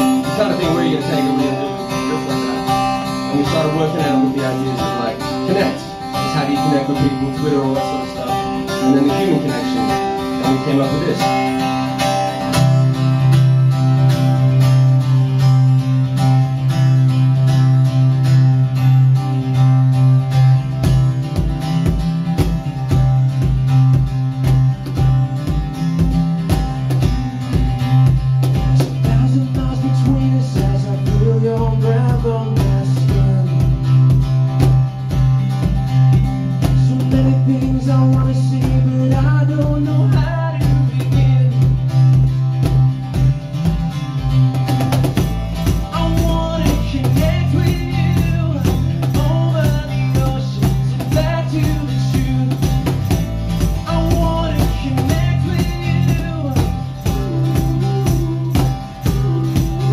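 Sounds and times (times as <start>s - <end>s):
bass guitar line: 0.0s - 59.9s
hand-played cajon beat: 0.0s - 59.9s
strummed acoustic guitar: 0.0s - 59.9s
person singing: 53.8s - 59.9s.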